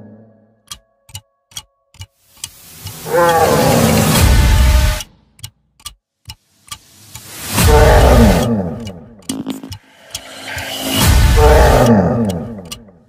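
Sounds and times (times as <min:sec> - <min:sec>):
sharp ticks: 0:00.6 - 0:13.0
monster roar: 0:03.0 - 0:04.4, 0:07.6 - 0:08.8, 0:10.6 - 0:12.7.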